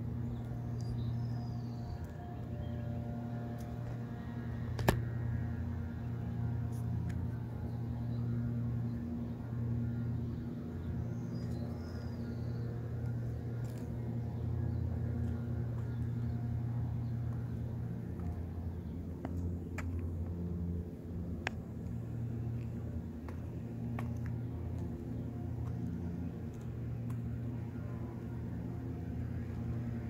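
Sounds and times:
low rumble and hum: 0.0s - 30.0s.

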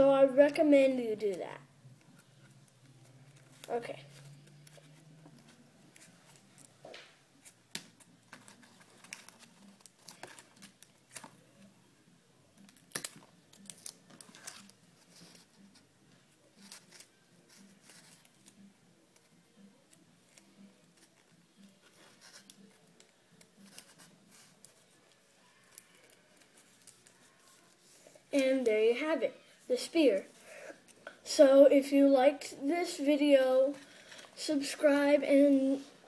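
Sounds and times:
paper rustling and crinkling: 2.2s - 11.7s, 12.6s - 15.8s, 16.6s - 28.7s.

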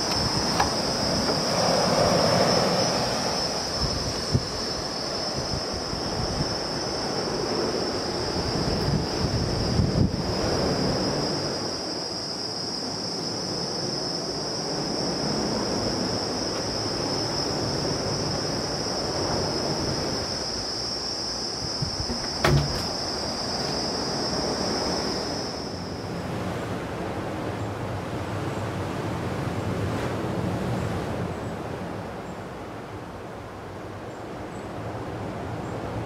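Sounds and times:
sea surf: 0.0s - 36.0s
handling bumps: 22.0s - 23.0s
sharp knock: 22.1s - 22.9s.

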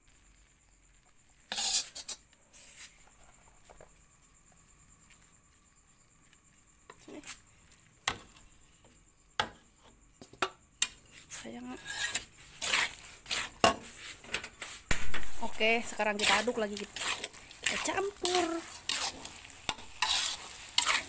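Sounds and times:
metal spatula scraping in wok: 1.5s - 2.9s, 10.8s - 21.0s.

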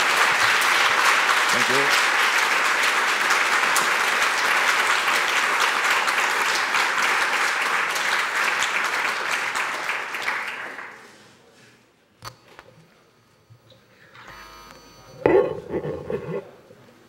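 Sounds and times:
large audience applauding: 0.0s - 11.2s.

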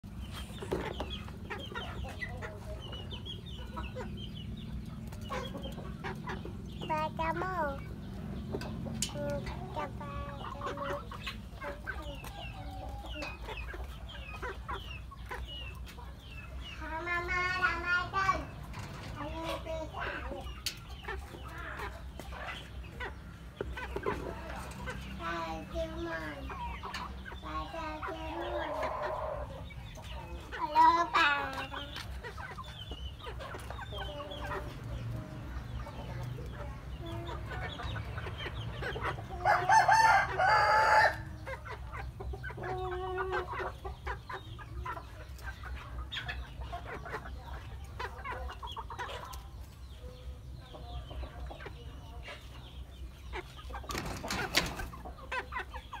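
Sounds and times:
roosters clucking and calling: 0.0s - 56.0s
rooster crowing: 39.5s - 41.2s.

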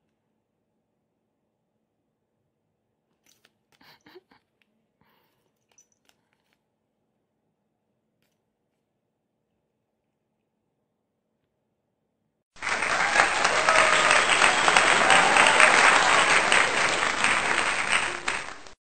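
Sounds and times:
large audience applauding: 12.6s - 18.8s.

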